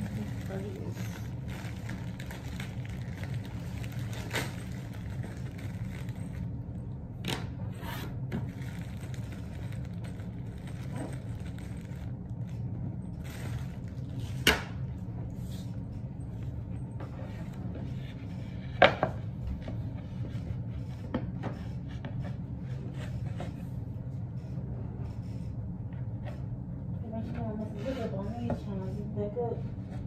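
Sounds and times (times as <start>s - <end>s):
packing material rustling: 0.0s - 6.6s, 8.4s - 14.2s
steady low hum: 0.0s - 30.0s.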